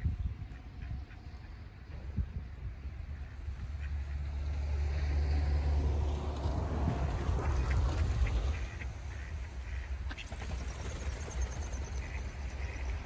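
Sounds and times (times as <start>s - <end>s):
ducks quacking: 0.0s - 2.2s, 2.8s - 4.8s, 6.7s - 13.0s.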